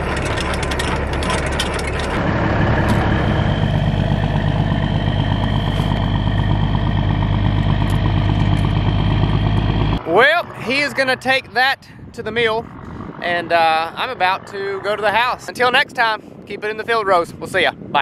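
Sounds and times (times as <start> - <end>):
landing gear crank clicking: 0.0 - 2.2
truck diesel engine running: 0.0 - 15.9.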